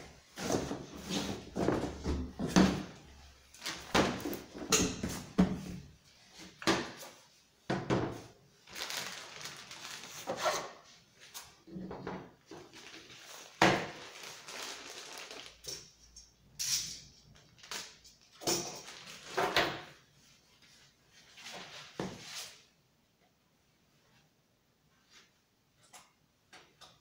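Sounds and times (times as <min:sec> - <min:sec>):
packing wrapper rustling: 0:08.6 - 0:10.6, 0:12.7 - 0:15.8, 0:18.8 - 0:19.4.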